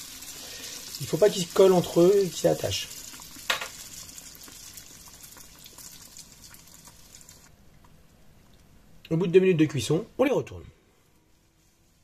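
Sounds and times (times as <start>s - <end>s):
doughnuts frying in hot oil: 0.0s - 7.6s.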